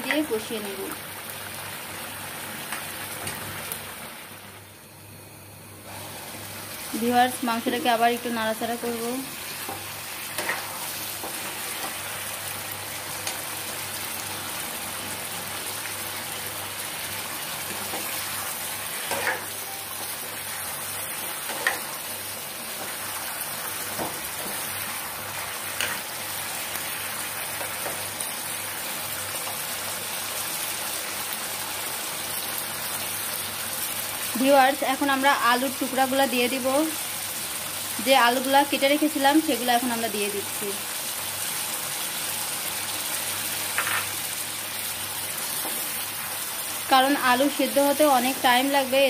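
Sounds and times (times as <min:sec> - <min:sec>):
chicken sizzling in a pan: 0:00.0 - 0:05.1, 0:05.8 - 0:49.0
spatula scraping a pan: 0:10.4 - 0:11.5.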